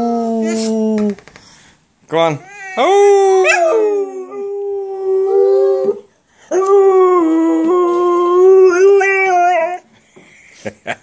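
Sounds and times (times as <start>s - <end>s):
dog howling: 2.5s - 9.8s.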